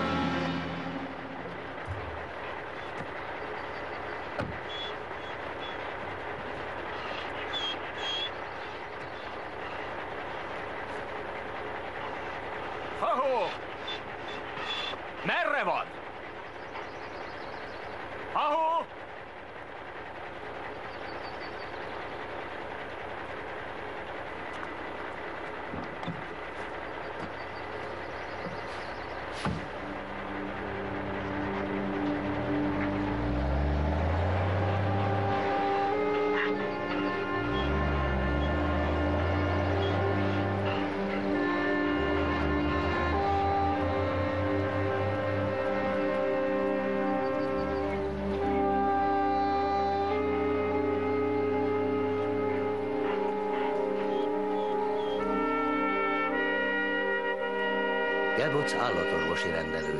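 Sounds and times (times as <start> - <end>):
outdoor rumble: 0.0 - 59.9
semi truck idling: 0.0 - 59.9
thud: 29.4 - 29.7
thump: 29.4 - 29.7
short knocks: 29.4 - 29.8.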